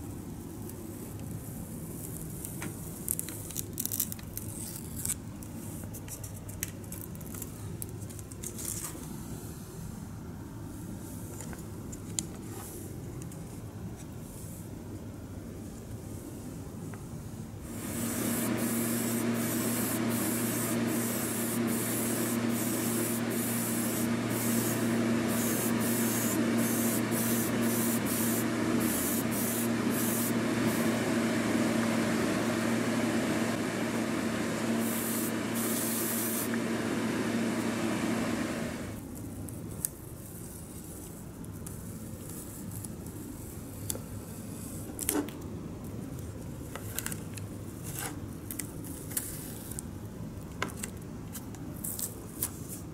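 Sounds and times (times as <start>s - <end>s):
motor hum: 17.6s - 39.0s
airbrush spraying hiss: 17.7s - 37.7s.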